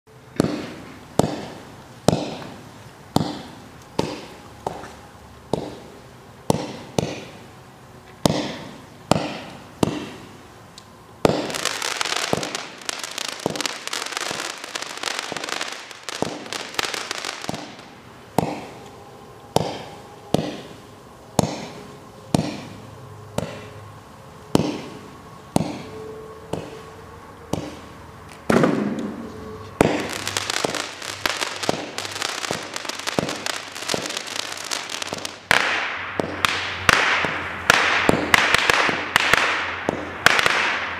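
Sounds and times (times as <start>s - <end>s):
fireworks crackling: 0.4s - 7.5s, 8.2s - 18.9s, 27.6s - 40.9s
fireworks launch bangs: 11.2s - 18.8s, 27.6s - 40.9s.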